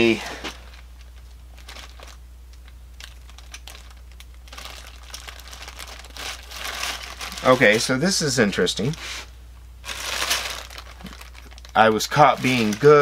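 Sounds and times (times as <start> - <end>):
plastic bag crinkling: 0.0 - 9.1, 9.8 - 13.0
low steady hum: 0.0 - 13.0.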